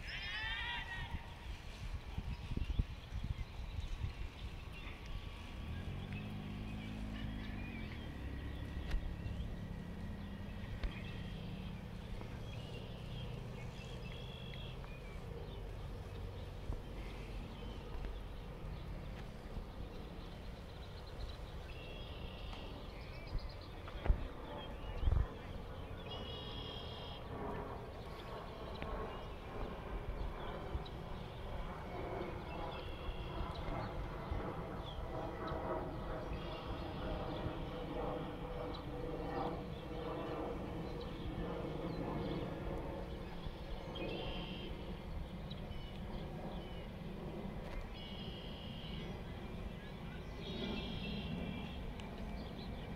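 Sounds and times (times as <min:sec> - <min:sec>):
high bird calls: 0:00.0 - 0:23.9
steady low rumble: 0:00.0 - 0:52.9.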